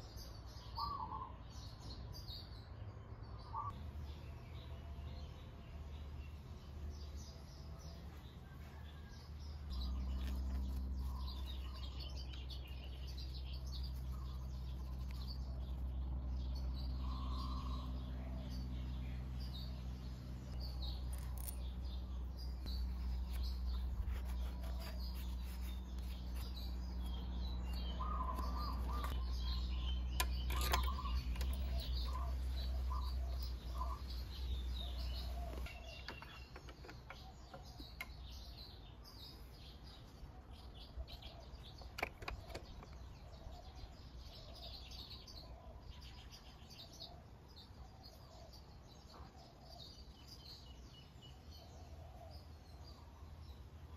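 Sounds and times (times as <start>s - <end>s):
small birds chirping: 0.0s - 53.9s
steady low hum: 3.1s - 41.8s.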